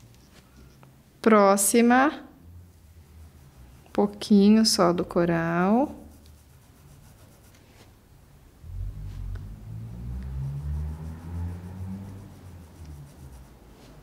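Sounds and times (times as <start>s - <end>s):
paintbrush rubbing on fabric: 2.8s - 8.0s, 10.3s - 14.0s
low rumble with wavering hum: 8.5s - 13.5s.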